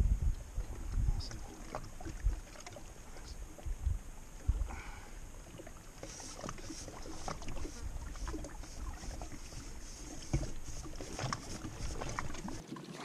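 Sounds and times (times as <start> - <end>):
wind rumbling on microphone: 0.0 - 5.5, 6.6 - 12.6
water lapping at bank: 0.3 - 13.0.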